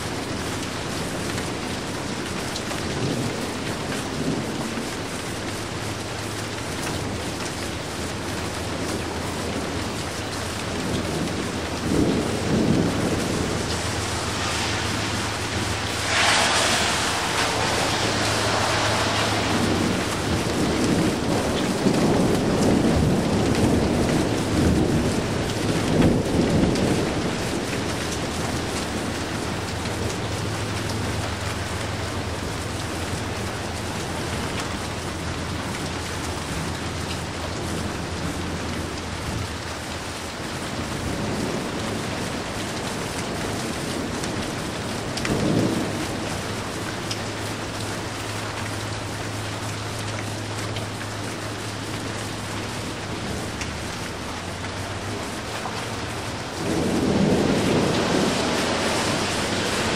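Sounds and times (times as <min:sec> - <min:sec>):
heavy rain: 0:00.0 - 0:59.9
low rumble of thunder: 0:00.0 - 0:59.9
thunderclap: 0:10.6 - 0:36.7, 0:51.8 - 0:59.9.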